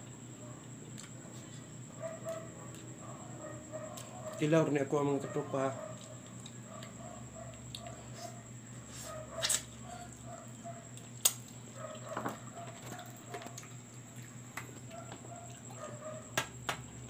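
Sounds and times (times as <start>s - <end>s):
steady low hum: 0.0s - 17.0s
person chewing: 0.7s - 1.6s, 6.0s - 8.4s.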